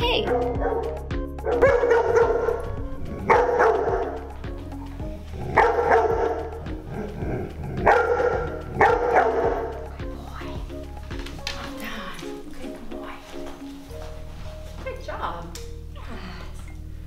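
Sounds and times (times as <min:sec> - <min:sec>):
dog barking: 0:00.2 - 0:04.3, 0:05.4 - 0:09.9.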